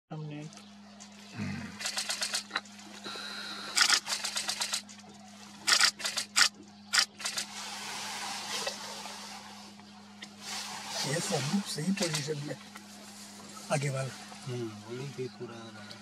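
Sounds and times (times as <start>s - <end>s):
steady low hum: 0.1s - 16.0s
camera shutters clicking: 1.8s - 2.5s, 3.8s - 4.8s, 5.7s - 7.5s.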